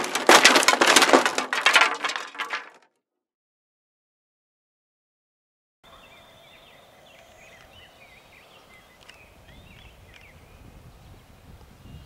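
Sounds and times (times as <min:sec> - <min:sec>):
small birds chirping: 0:05.9 - 0:12.0.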